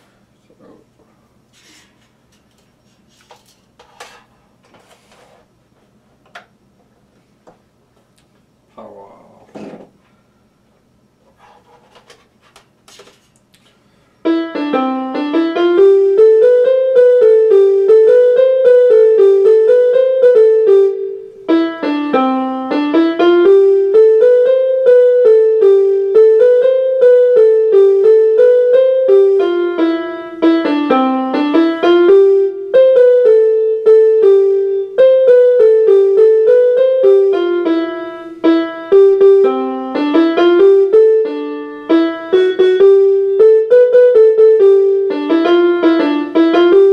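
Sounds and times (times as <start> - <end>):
electronic keyboard melody: 14.2 - 46.9.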